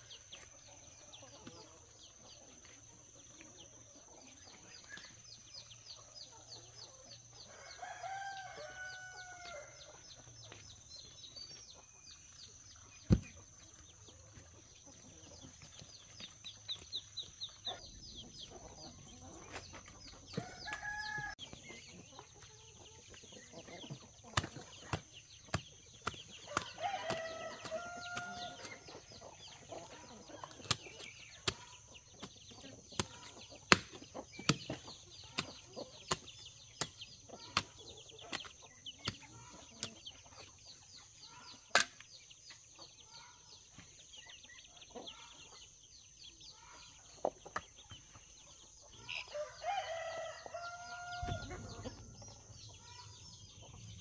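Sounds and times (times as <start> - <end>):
hens clucking: 0.0 - 54.0
rooster crowing: 7.5 - 9.8, 20.4 - 21.4, 26.5 - 28.6, 49.3 - 51.9.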